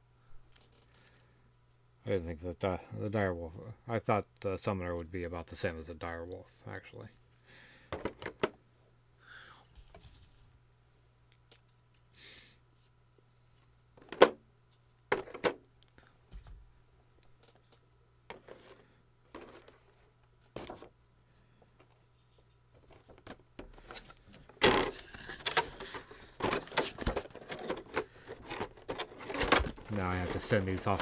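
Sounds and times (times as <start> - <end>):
faint low hum: 0.0 - 31.0
plastic items clicking and knocking: 7.9 - 8.6, 15.1 - 15.7, 22.8 - 31.0
packaging rustling and crackling: 22.8 - 31.0.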